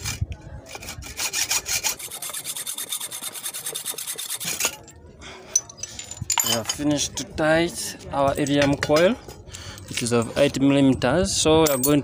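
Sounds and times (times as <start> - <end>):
hacksaw cutting: 0.7 - 4.8.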